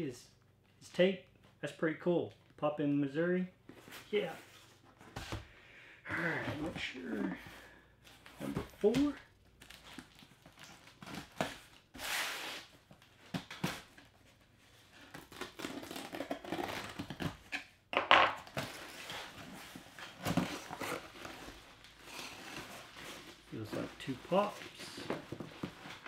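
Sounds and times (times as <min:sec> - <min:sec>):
packing tape ripping: 0:15.0 - 0:17.6.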